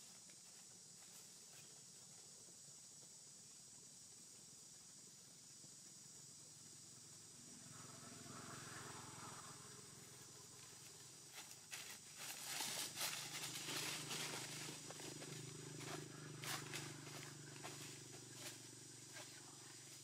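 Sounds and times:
faint low hum: 0.0s - 20.0s
insects buzzing: 0.0s - 20.0s.

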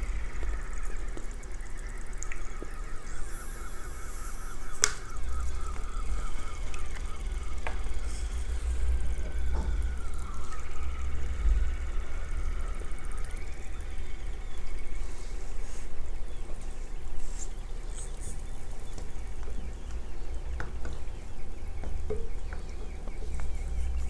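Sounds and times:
low rumble: 0.0s - 24.0s.

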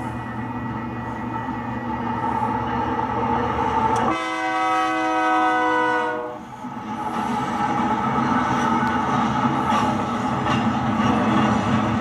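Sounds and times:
locomotive and rail running noise: 0.0s - 12.0s
locomotive horn blast: 4.0s - 6.5s.

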